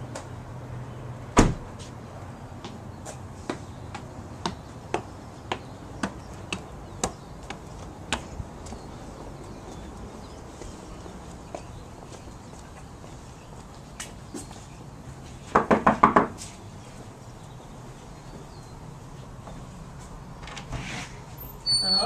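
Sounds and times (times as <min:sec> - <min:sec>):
car door slamming: 0:01.4 - 0:01.7
footsteps on concrete: 0:01.7 - 0:15.6, 0:16.3 - 0:18.7.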